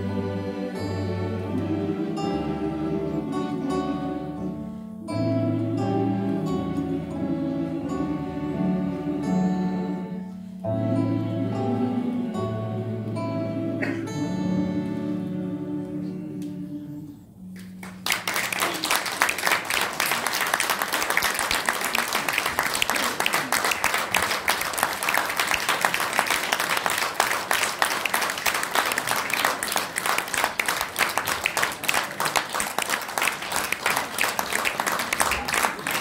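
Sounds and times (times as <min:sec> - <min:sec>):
choir holding a chord: 0:00.0 - 0:17.4
audience applause: 0:17.6 - 0:36.0.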